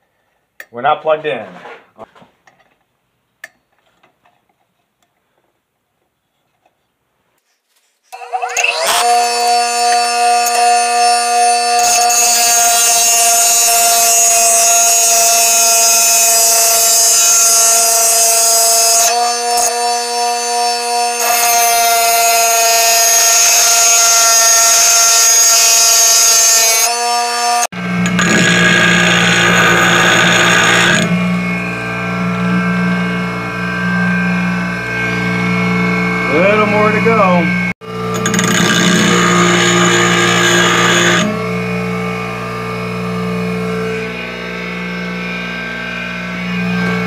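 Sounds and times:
bench grinder motor whine: 8.1s - 47.0s
metal grinding against wheel: 28.0s - 31.2s, 38.1s - 41.3s.

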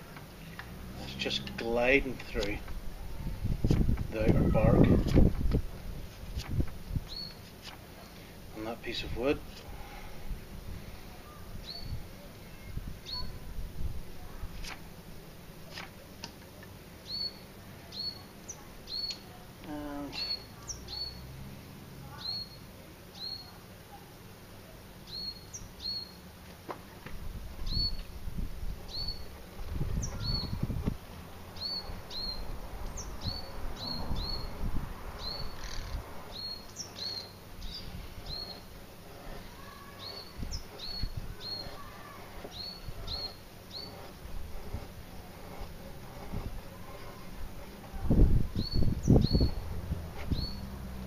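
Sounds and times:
bird chirping: 7.0s - 7.4s, 11.2s - 13.4s, 17.0s - 19.3s, 19.9s - 21.3s, 22.1s - 23.5s, 25.0s - 26.2s, 27.6s - 28.1s, 28.9s - 29.4s, 30.0s - 30.6s, 31.5s - 34.6s, 35.2s - 44.1s, 48.6s - 51.0s
knife shaving wood: 14.4s - 14.9s, 35.4s - 48.3s.

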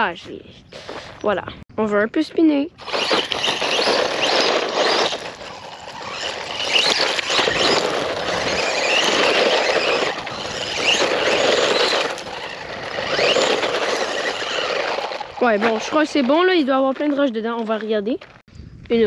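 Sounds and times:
electric motor whine: 2.8s - 16.3s
gravel crunching and spraying: 2.8s - 18.4s.

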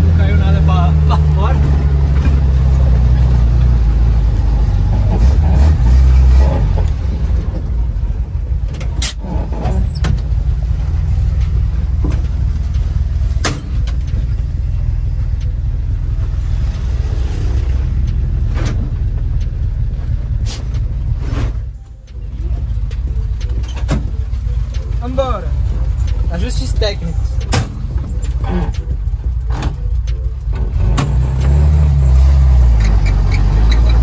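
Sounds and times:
engine rumbling: 0.0s - 34.0s
sharp knocks and clunks: 13.3s - 14.5s.

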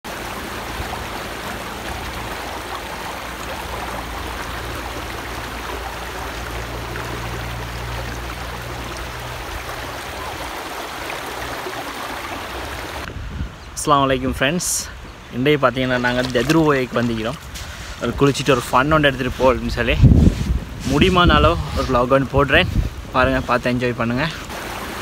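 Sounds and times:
river water flowing over rocks: 0.0s - 13.1s, 24.4s - 25.0s.

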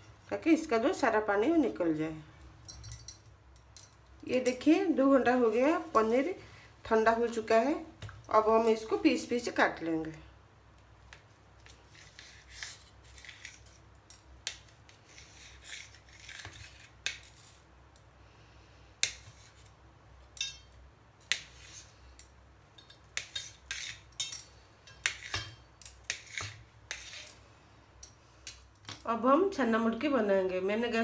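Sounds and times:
knife clicking and scraping on steel: 11.6s - 17.6s, 20.4s - 27.4s.

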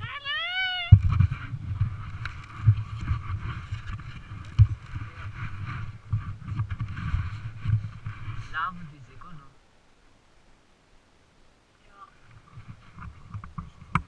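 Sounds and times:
wind buffeting microphone: 0.0s - 9.5s.

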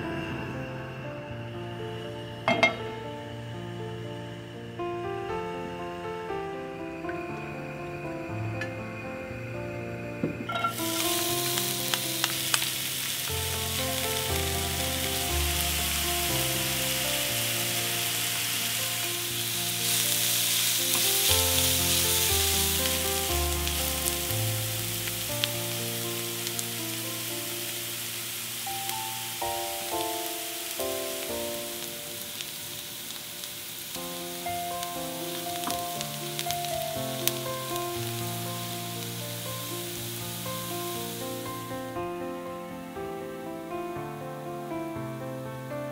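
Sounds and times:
onions sizzling in oil: 1.6s - 4.0s, 10.5s - 42.9s.

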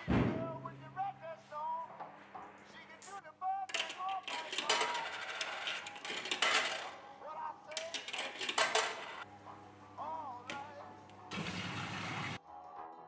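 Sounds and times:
coins clinking in coin mechanism: 3.0s - 7.0s, 7.7s - 9.3s.

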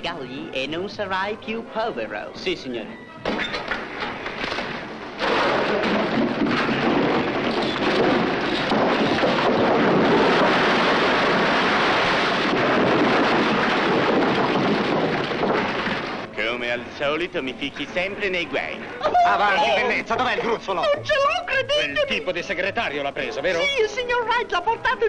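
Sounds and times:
coal pouring down a chute: 5.2s - 17.2s.

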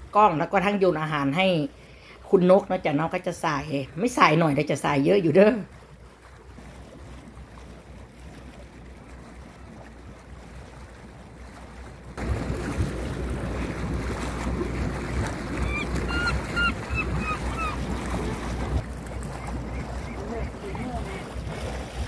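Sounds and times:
sea noise: 0.0s - 22.0s
wind: 0.0s - 22.0s
gulls calling: 14.5s - 21.4s.

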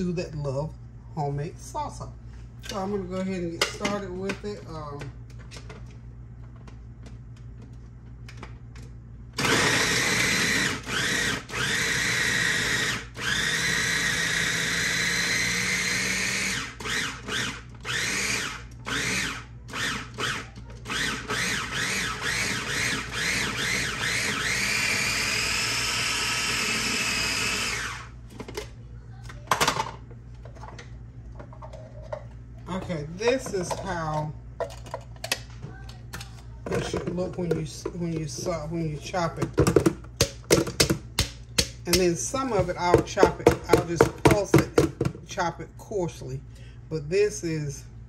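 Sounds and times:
food chopper motor whirring: 9.4s - 28.2s.

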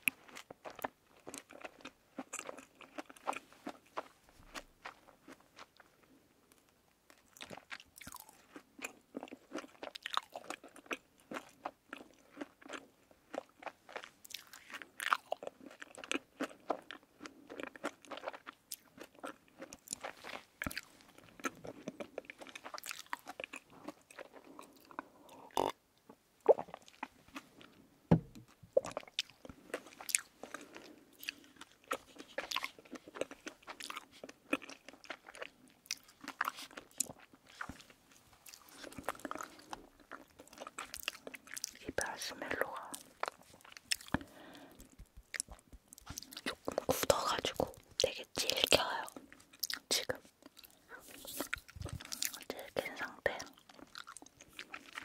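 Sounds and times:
mouth chewing sweets: 0.0s - 55.0s.

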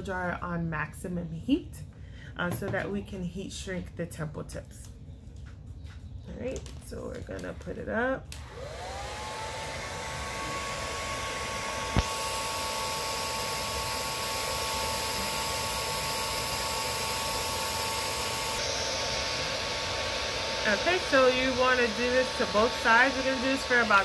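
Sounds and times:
hair dryer switch click: 8.3s - 9.1s, 11.8s - 12.2s
hair dryer motor whine: 8.3s - 24.0s.

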